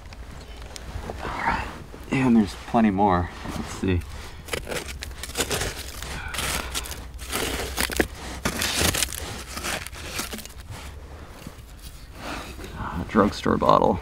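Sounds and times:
hand tool scraping gritty soil: 0.9s - 13.6s.

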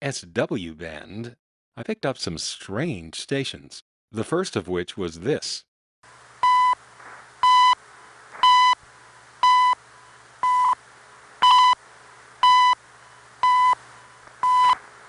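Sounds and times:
radio hiss: 6.1s - 9.3s, 10.9s - 15.0s
short high radio beeps: 8.4s - 8.8s, 14.4s - 14.8s.

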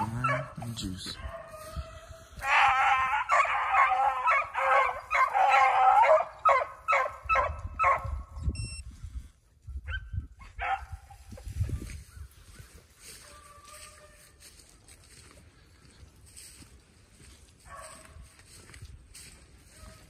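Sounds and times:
dogs baying and barking: 0.0s - 8.4s, 9.8s - 14.5s, 17.2s - 18.4s, 19.3s - 20.0s.

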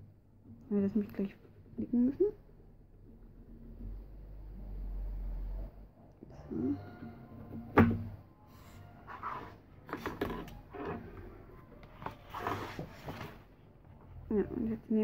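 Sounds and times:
paper rustling: 11.9s - 13.6s.

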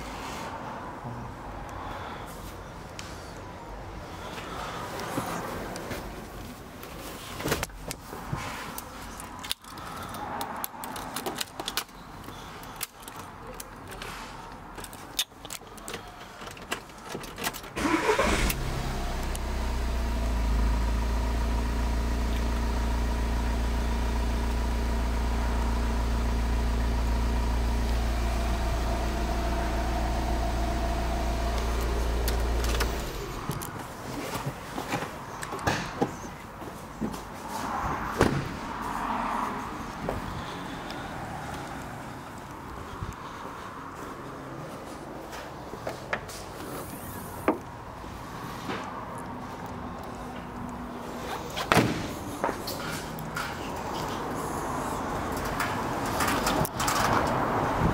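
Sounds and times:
van engine idling: 17.8s - 33.7s.

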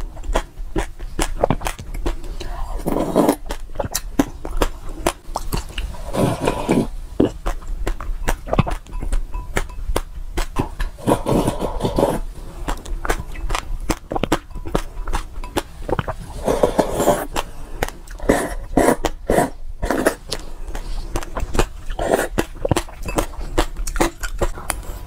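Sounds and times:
wet eating clicks: 0.2s - 2.5s, 7.2s - 11.0s, 12.6s - 16.2s, 19.9s - 24.8s
person slurping: 1.2s - 4.0s, 4.9s - 7.5s, 10.6s - 12.9s, 14.1s - 25.0s.

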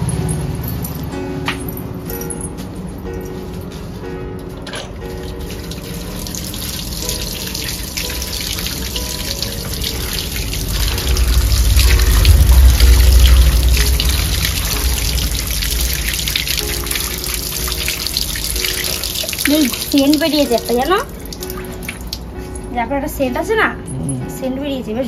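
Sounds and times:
water running from a tap: 4.8s - 22.7s
water splashing onto apples: 15.8s - 22.2s.

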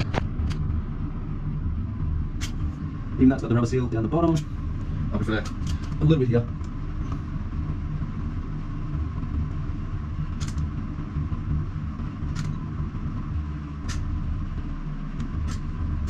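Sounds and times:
steady low rumble: 0.0s - 16.0s
sharp clicks: 10.4s - 10.7s.

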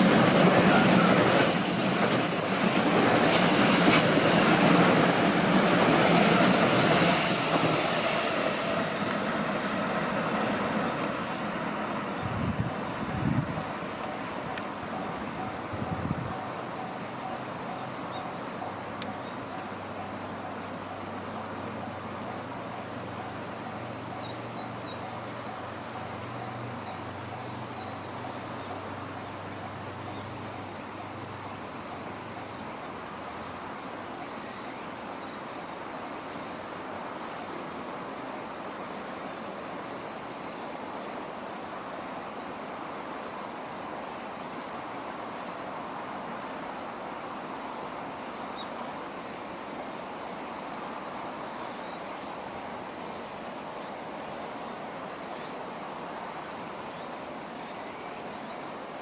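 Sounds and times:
train pulling away: 0.0s - 14.4s
insect chirps: 0.0s - 59.0s
insects trilling: 0.0s - 59.0s.

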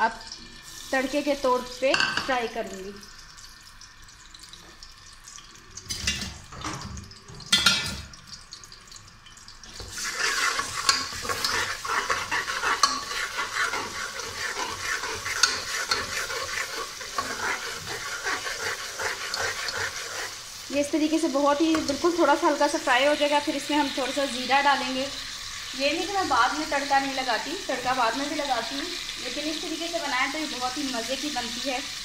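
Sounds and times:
paste frying in hot oil: 0.0s - 32.0s
metal spoon scraping a pot: 9.9s - 20.4s.

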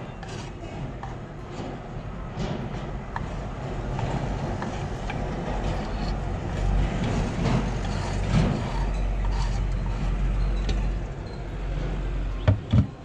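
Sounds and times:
steady low rumble: 1.2s - 12.4s
knife scraping on cutting board: 7.1s - 10.0s.

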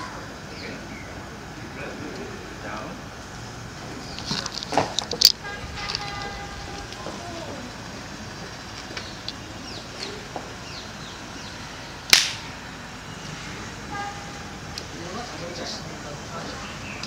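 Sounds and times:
loud sharp crack: 12.1s - 12.6s.

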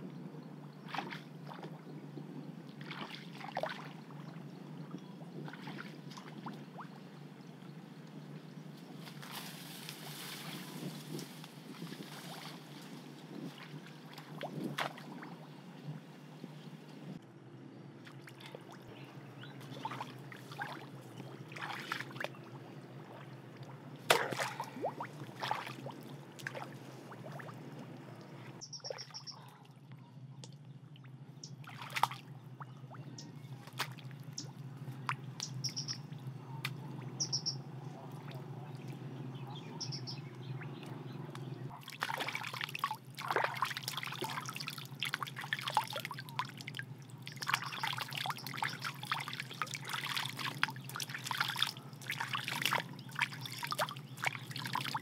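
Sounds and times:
water splashing around legs: 0.9s - 1.7s, 2.8s - 4.2s, 5.3s - 6.9s, 9.0s - 15.4s, 18.0s - 28.4s, 31.6s - 32.3s, 33.6s - 35.6s, 41.7s - 55.0s
short high bird chirps: 28.6s - 29.4s, 35.4s - 36.1s, 37.2s - 37.7s
water dripping: 41.9s - 55.0s.

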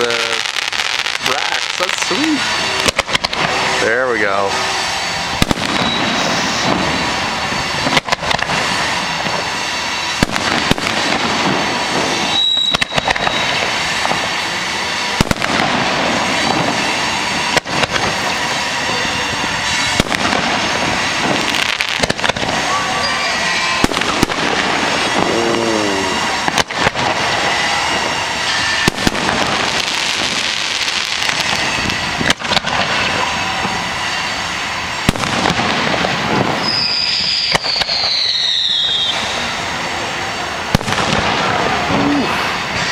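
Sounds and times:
fireworks bangs: 0.0s - 42.9s
fireworks hiss: 0.0s - 42.9s.

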